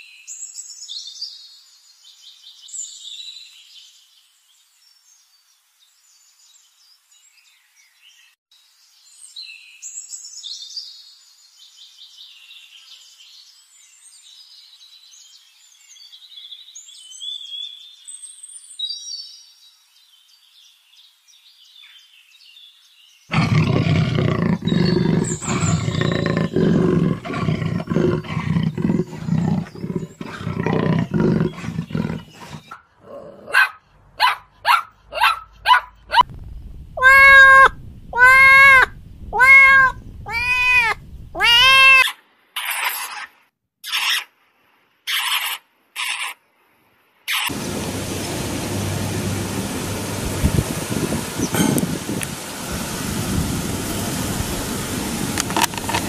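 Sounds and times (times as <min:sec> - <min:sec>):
small birds chirping: 0:20.1 - 0:33.3, 0:35.2 - 0:43.2
lion roaring: 0:23.3 - 0:33.6, 0:36.2 - 0:41.6
cat meowing: 0:37.0 - 0:42.1.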